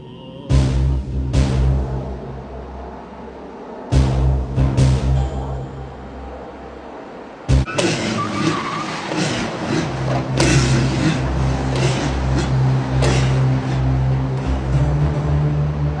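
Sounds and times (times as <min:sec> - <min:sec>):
steady low hum: 0:00.0 - 0:07.7
car engine running: 0:07.2 - 0:15.9.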